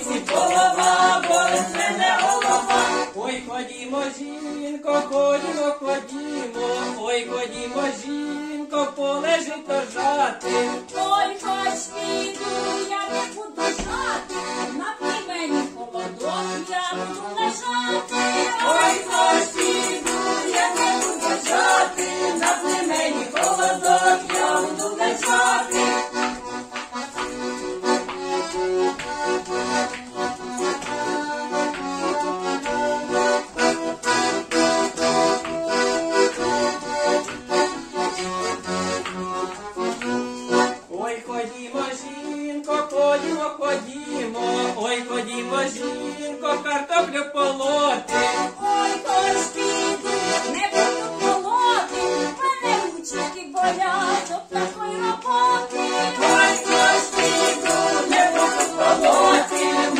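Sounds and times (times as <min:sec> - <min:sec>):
voices: 0:00.0 - 0:03.0, 0:11.0 - 0:25.8, 0:48.6 - 0:59.9
accordion folk dance tune: 0:00.0 - 0:59.9.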